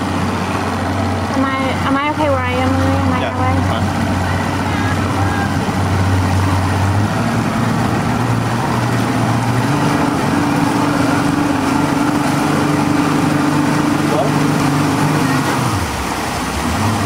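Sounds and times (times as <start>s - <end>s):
motorboat engine running: 0.0s - 17.0s.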